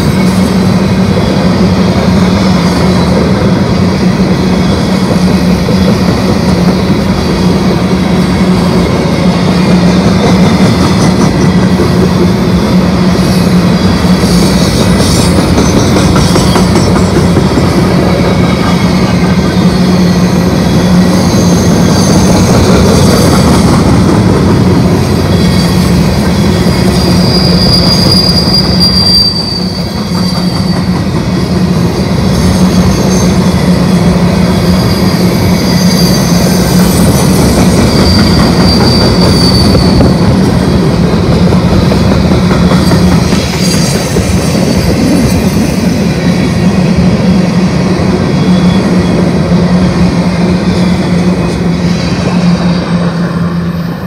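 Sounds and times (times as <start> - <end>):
train cars rumbling past: 0.0 - 54.0
high thin wheel squeals: 12.6 - 17.4, 18.3 - 24.2, 24.8 - 40.9, 42.7 - 46.0, 48.2 - 54.0.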